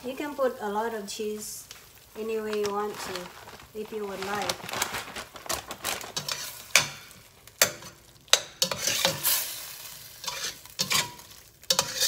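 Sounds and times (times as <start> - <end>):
spatula scraping in pot: 6.2 - 6.9, 8.6 - 12.0
spatula clinking on metal pot: 10.2 - 12.0.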